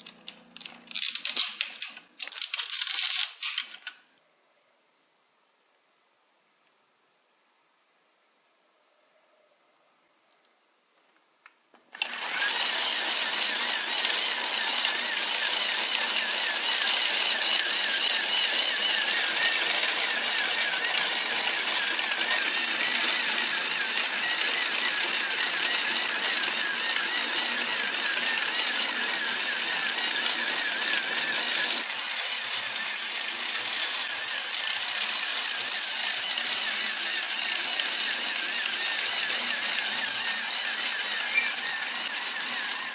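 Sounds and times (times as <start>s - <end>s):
plastic gears whirring and rattling: 0.0s - 4.0s, 11.9s - 42.9s
small clicks: 0.0s - 4.0s
small electric motor running: 12.0s - 42.9s.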